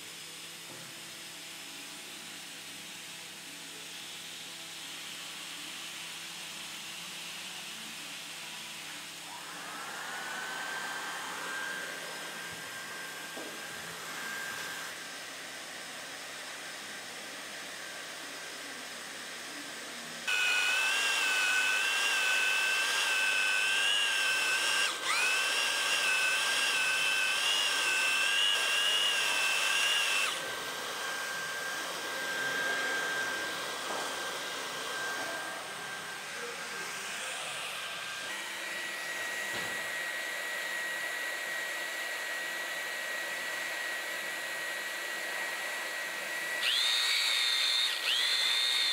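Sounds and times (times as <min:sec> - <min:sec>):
hot-air blower hissing: 0:00.0 - 0:48.9
drive motor whining: 0:09.2 - 0:14.9, 0:20.3 - 0:48.9.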